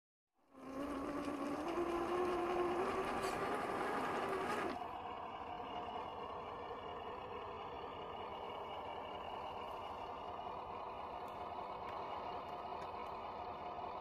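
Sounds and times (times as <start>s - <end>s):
toy car motor whining: 0.5s - 4.8s.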